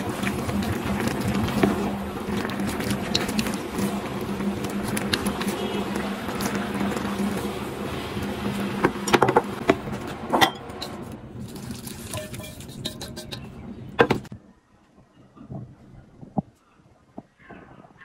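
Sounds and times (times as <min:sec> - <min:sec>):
broth simmering: 0:00.0 - 0:13.9
cooktop hum: 0:00.0 - 0:14.4.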